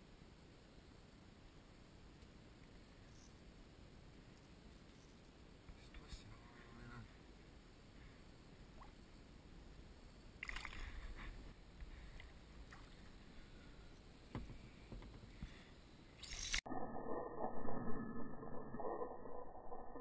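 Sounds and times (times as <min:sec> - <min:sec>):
faint water sounds: 0:00.0 - 0:20.0.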